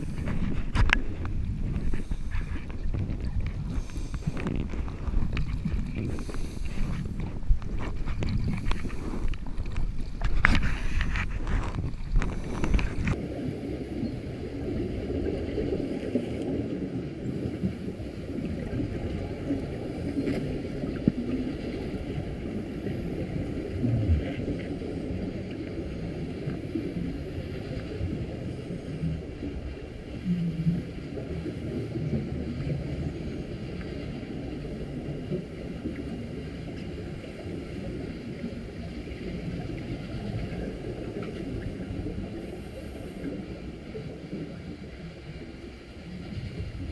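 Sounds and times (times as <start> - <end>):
bubbling of exhaled air: 0.0 - 14.0, 17.6 - 27.4
underwater rush and rumble: 0.0 - 46.9.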